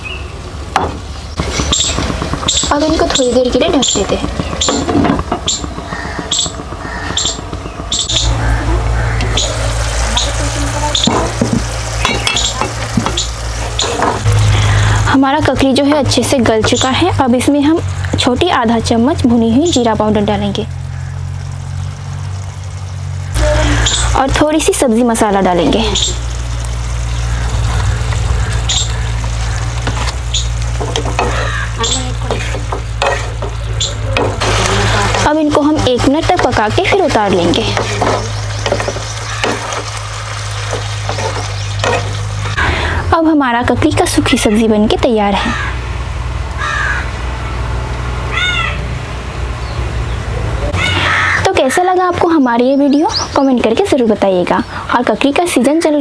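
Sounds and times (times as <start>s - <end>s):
wooden spatula stirring: 1.4s - 7.9s, 37.6s - 42.5s
spatula knocking against pan: 4.0s - 8.2s, 30.8s - 34.4s
food sizzling in a pan: 8.2s - 42.8s.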